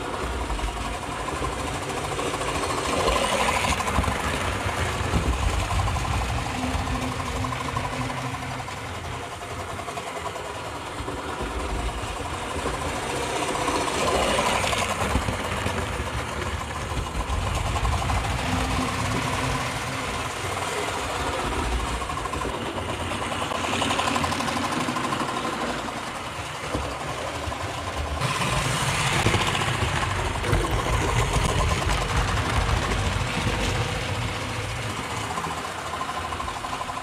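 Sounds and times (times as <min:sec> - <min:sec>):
model train mechanical whirr: 0:00.0 - 0:37.0
wheels rattling on metal track: 0:00.0 - 0:37.0.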